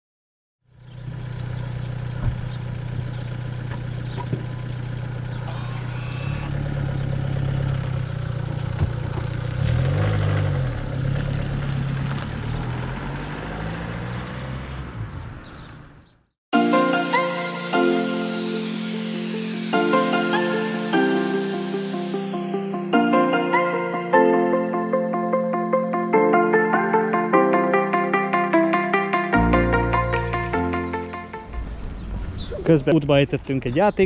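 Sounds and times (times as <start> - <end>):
car engine idling: 0.7 - 9.6
car pulling away and driving off: 0.7 - 16.3, 17.1 - 21.6, 29.4 - 34.0.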